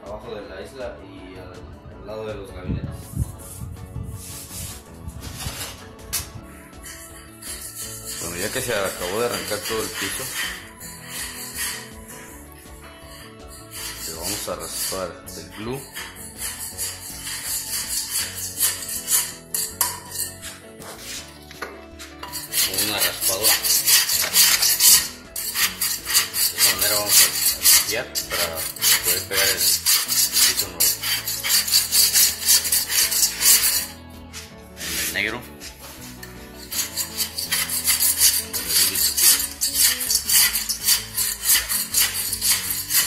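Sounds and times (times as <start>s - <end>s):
power chisel scraping subfloor: 4.2s - 43.0s.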